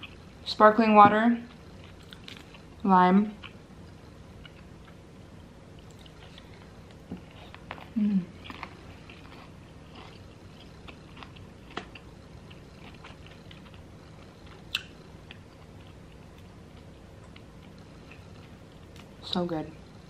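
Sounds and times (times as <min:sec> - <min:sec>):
person chewing: 0:01.5 - 0:02.8, 0:04.4 - 0:05.0, 0:05.7 - 0:19.1.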